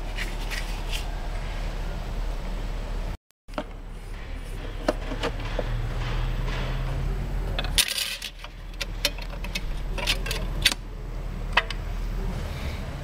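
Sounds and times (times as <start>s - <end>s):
steady low hum: 0.0s - 13.0s
metal clutch plates clinking: 4.6s - 10.8s.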